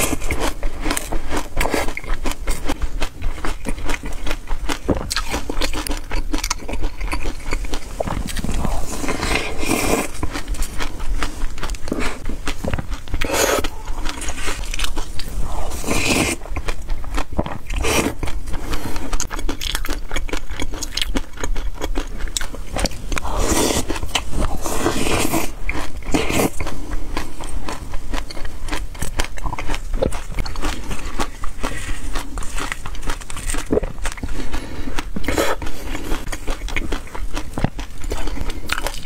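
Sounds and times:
crunchy chewing: 0.0 - 39.0.

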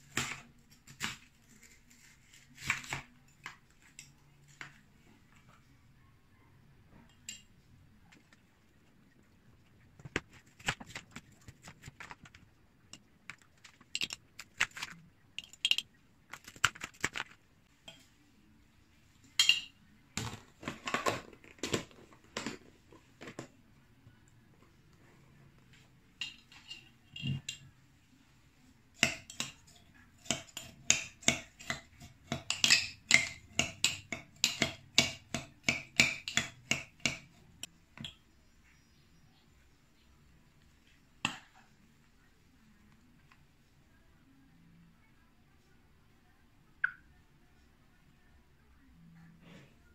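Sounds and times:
metal spoon clinking on glass jar: 15.4 - 15.9.

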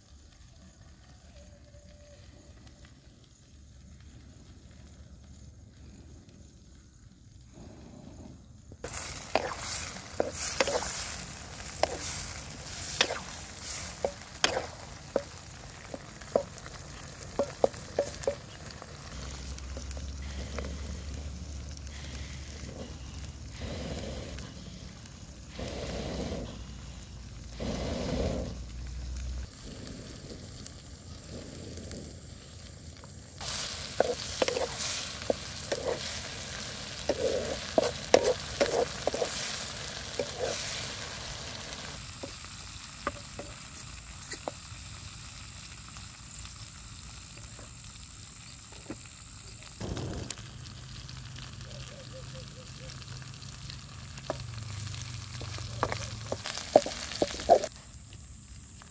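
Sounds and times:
grasshoppers sizzling in a wok: 0.0 - 58.9
wooden spatula scraping a pan: 8.9 - 21.1, 33.4 - 42.4, 55.3 - 57.7.

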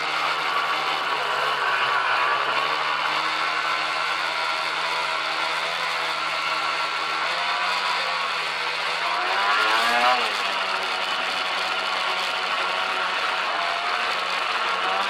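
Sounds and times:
snowmobile engine revving: 0.0 - 15.0.

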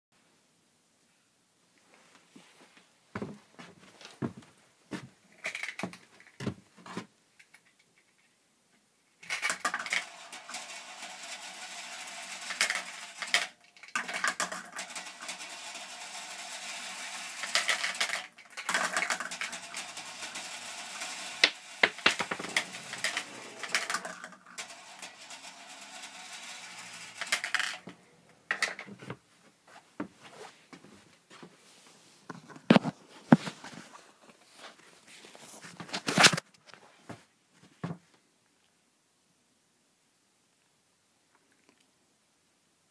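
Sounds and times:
steel balls rolling and clattering: 5.4 - 6.4, 9.2 - 29.0.

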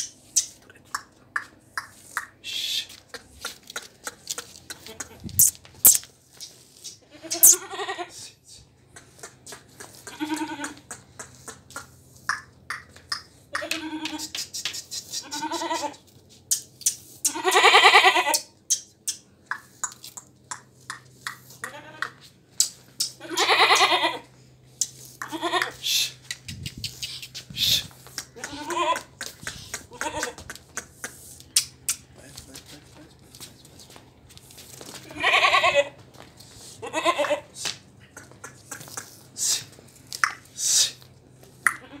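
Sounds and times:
short hissing noises: 5.4 - 7.6, 40.5 - 41.0
goat bleating: 7.0 - 8.2, 10.0 - 10.8, 13.5 - 14.4, 15.1 - 16.1, 17.2 - 18.5, 21.6 - 22.2, 23.2 - 24.3, 25.2 - 25.9, 28.4 - 29.1, 29.9 - 30.4, 35.0 - 36.0, 36.8 - 37.5, 41.7 - 42.0.

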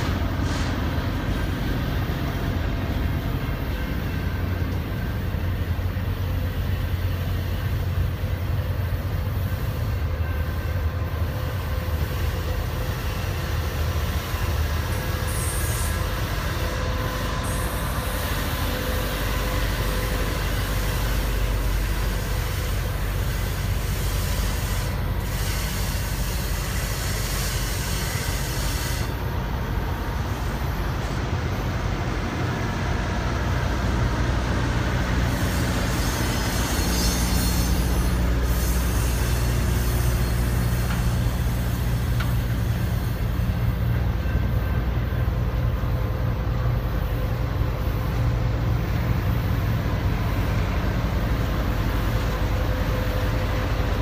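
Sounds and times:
hiss: 0.0 - 1.6, 11.3 - 29.3, 35.2 - 43.7
freight train wheels rumbling: 0.0 - 54.0.

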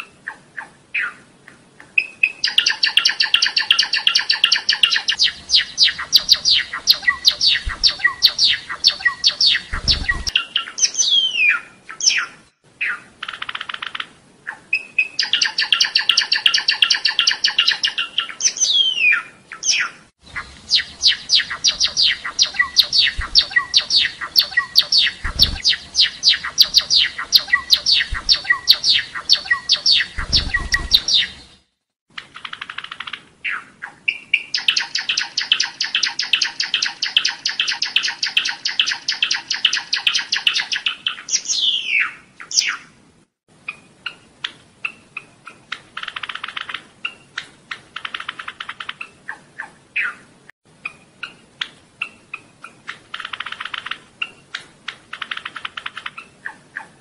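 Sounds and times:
sparrow singing clicking notes: 0.6 - 14.6, 15.2 - 31.6.

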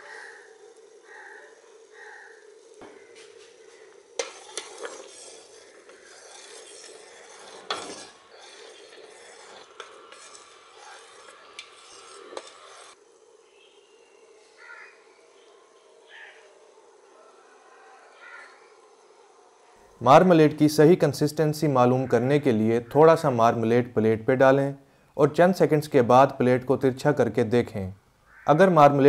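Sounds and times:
spoon scraping metal pot: 3.1 - 13.0.

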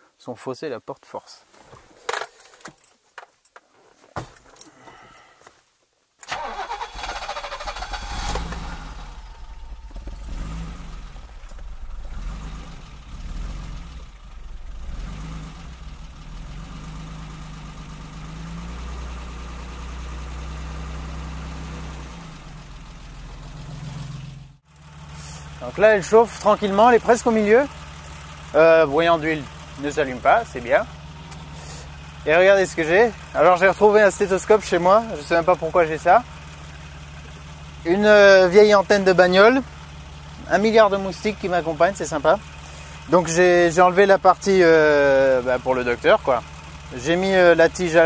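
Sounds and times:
starter motor cranking: 6.2 - 16.7
car engine idling: 6.3 - 48.0.

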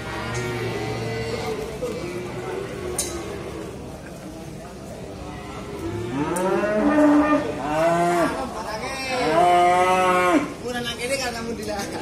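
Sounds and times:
cow mooing: 5.5 - 8.4.

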